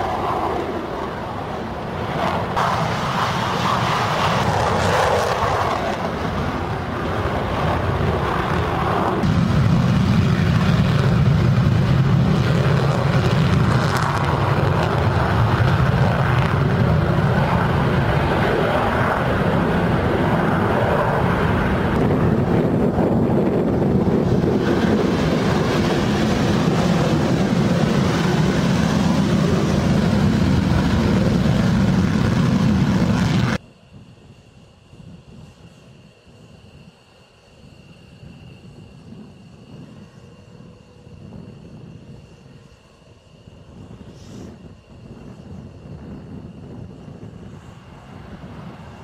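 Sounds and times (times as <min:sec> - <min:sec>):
jet afterburner roar: 0:00.0 - 0:33.6.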